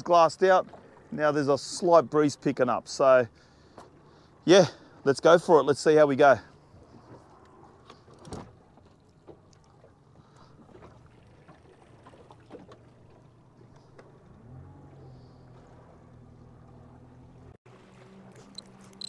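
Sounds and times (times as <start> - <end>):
faint outboard motor running: 9.2 - 19.0.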